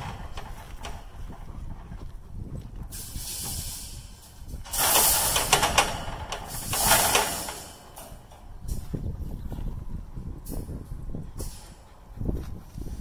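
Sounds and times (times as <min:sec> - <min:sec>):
wire fence panel scraping grass: 0:02.9 - 0:08.8.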